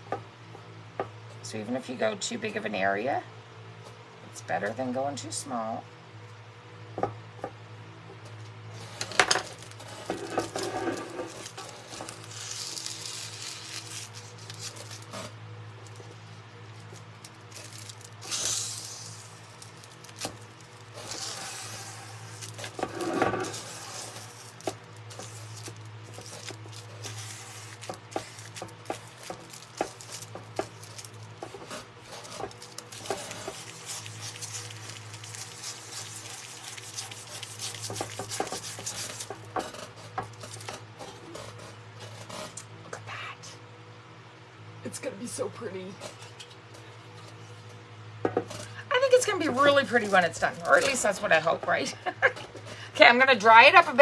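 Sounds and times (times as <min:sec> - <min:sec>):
steady low hum: 0:00.0 - 0:54.0
rubbing and tapping on metal tray: 0:31.4 - 0:40.4.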